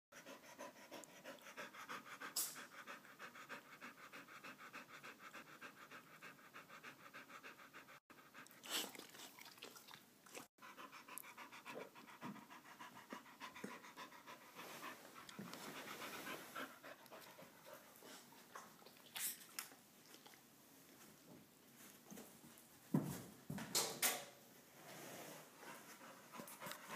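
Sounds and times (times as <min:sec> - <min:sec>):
dog panting: 0:00.2 - 0:09.5, 0:10.6 - 0:19.0, 0:25.6 - 0:26.9.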